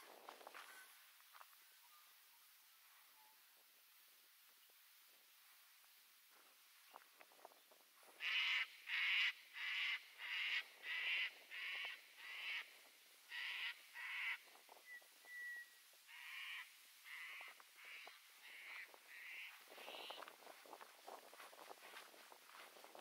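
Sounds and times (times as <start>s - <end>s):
crow cawing: 8.2s - 12.7s, 13.3s - 14.4s, 16.1s - 20.2s
thin bird whistle: 14.8s - 15.8s.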